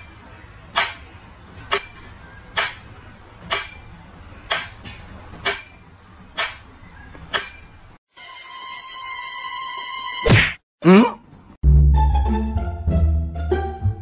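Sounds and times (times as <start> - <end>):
bell ding: 0.0 - 8.0.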